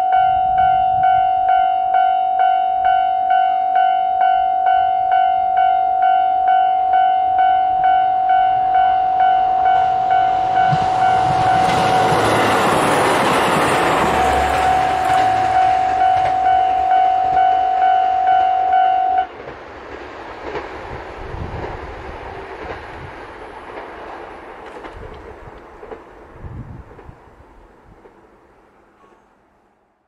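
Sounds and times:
train wheels on rails: 7.4s - 29.4s.

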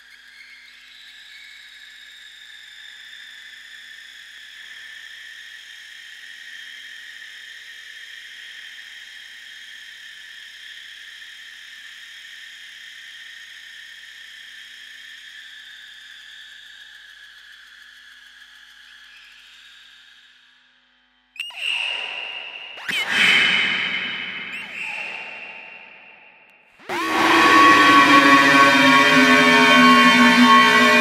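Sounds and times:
hissy electronic whine: 26.8s - 31.0s.

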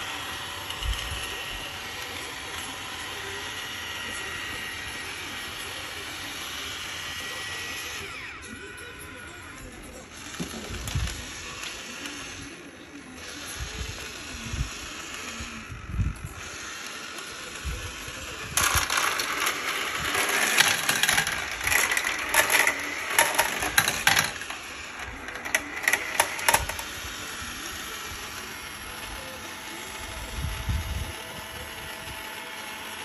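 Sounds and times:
marbles clattering down plastic track: 18.4s - 27.4s.

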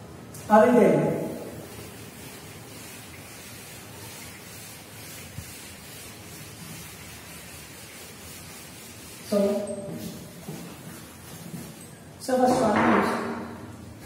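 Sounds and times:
steady hiss: 0.2s - 12.1s
duster rubbing on blackboard: 1.3s - 11.9s.

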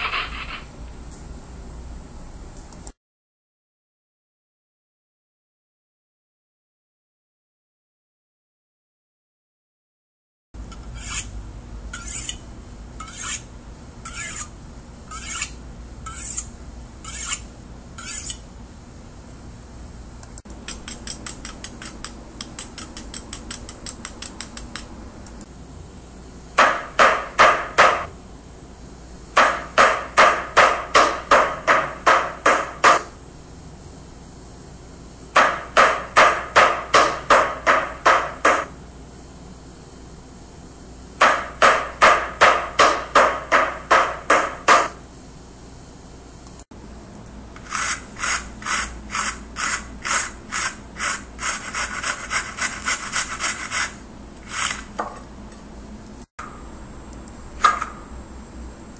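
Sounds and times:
knife scraping on honing steel: 0.0s - 0.7s, 10.7s - 12.4s, 13.0s - 18.5s, 20.7s - 24.8s, 47.6s - 54.9s
meat mallet pounding meat: 26.6s - 28.1s, 29.4s - 33.1s, 35.4s - 38.7s, 41.2s - 45.0s.

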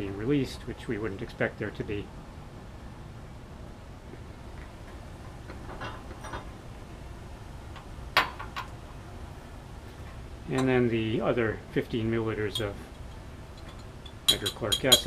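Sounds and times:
glassware handling noises: 5.6s - 6.5s, 12.5s - 15.0s
glass clink: 13.6s - 15.0s.

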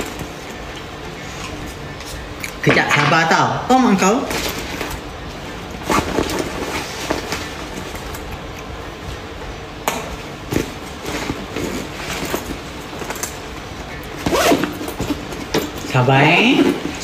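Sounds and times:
steady background noise: 0.0s - 17.0s
backpack fabric rustling: 4.3s - 8.4s, 10.4s - 17.0s.

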